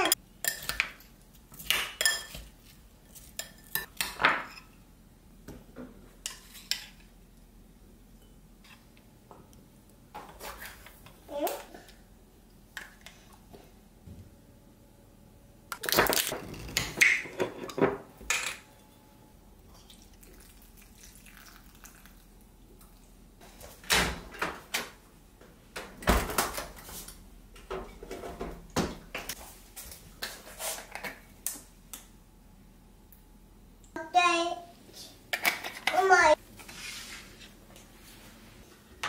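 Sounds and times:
liquid pouring: 19.8 - 23.0.

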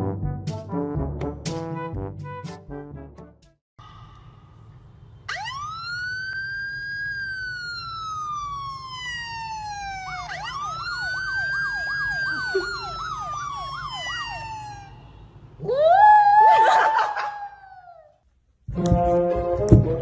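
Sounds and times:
siren wail: 5.3 - 18.1
siren yelp warble: 5.3 - 18.1.

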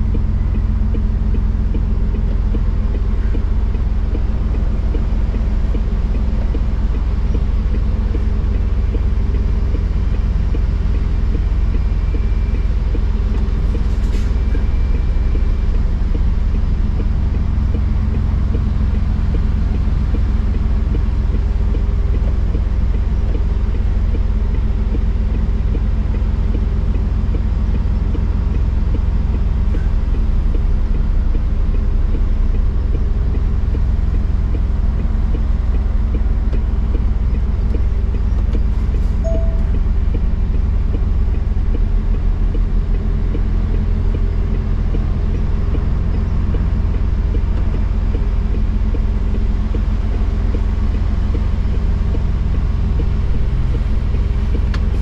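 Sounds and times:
diesel truck engine running: 0.0 - 55.0
faint short beeps: 39.2 - 40.0.

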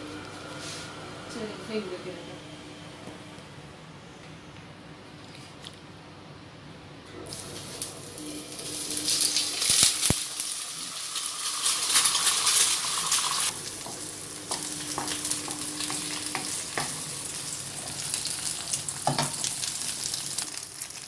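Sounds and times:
eggs sizzling in oil: 7.3 - 21.0.

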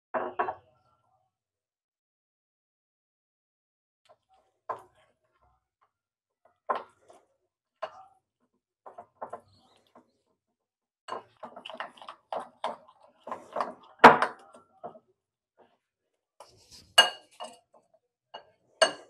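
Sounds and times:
utensil scraping a ceramic bowl: 16.4 - 17.7.

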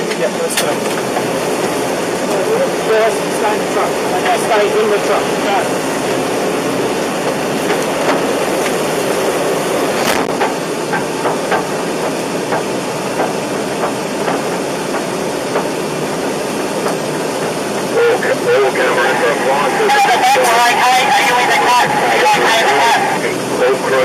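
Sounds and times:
fire crackles and knocks: 7.2 - 9.2, 9.9 - 17.9.

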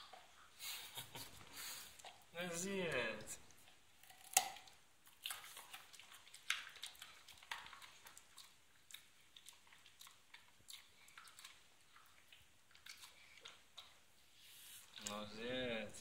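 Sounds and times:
dog crunching carrot: 2.0 - 14.0.

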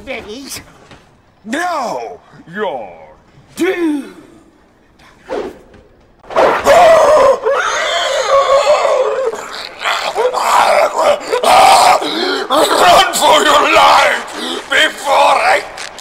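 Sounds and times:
people screaming and roaring: 6.2 - 16.0.

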